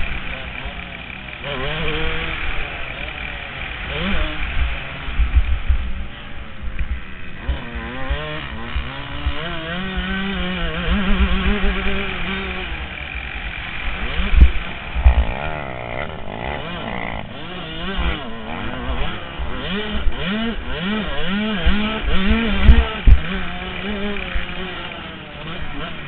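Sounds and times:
motorcycle engine revving: 0.0 - 26.0
loud thumps: 14.3 - 18.2.

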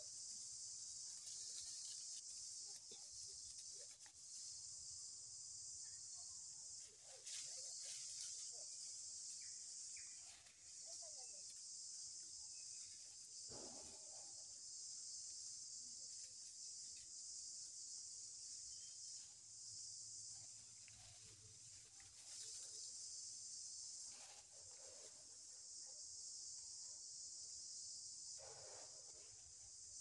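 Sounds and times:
rustle: 0.0 - 4.6, 6.7 - 11.6, 20.4 - 23.3, 23.9 - 25.3
insects buzzing: 0.0 - 30.0.

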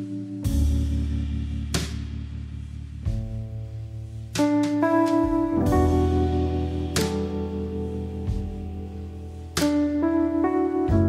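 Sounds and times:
bass line: 0.0 - 11.0
sustained instrumental chords: 0.0 - 11.0.

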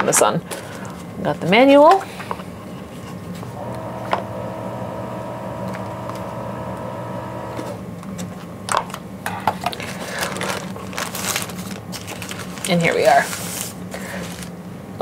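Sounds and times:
steady hum with held tones: 0.0 - 13.1
paper rustling and crinkling: 9.6 - 14.6.

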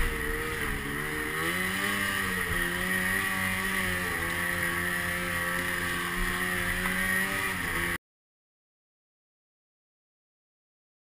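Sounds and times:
snowmobile engine running: 0.0 - 8.0.

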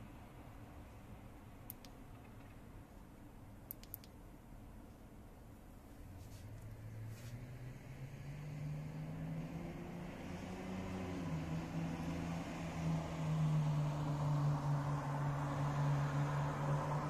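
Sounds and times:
road noise: 0.0 - 17.0
vehicle engine hum: 5.5 - 17.0.

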